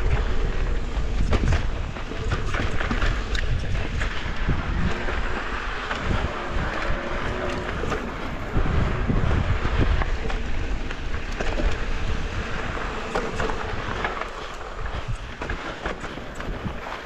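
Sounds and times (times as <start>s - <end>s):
wind buffeting microphone: 0.0s - 17.0s.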